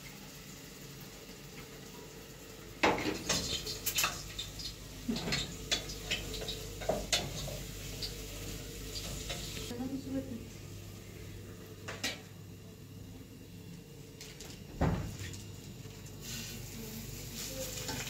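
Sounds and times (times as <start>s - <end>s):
dishes and utensils clattering: 2.8s - 8.1s
steady low hum: 4.1s - 17.4s.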